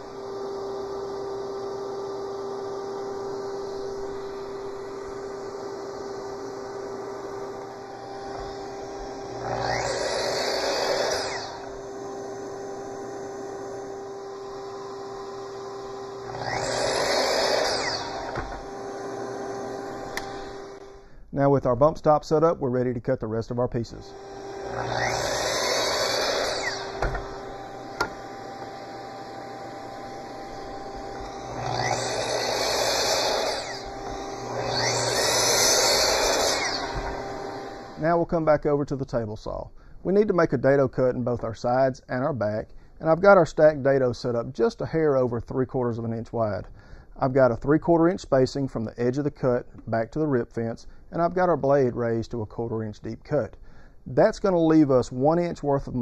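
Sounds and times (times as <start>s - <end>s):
miter saw cutting: 0.0s - 21.0s, 23.9s - 38.4s.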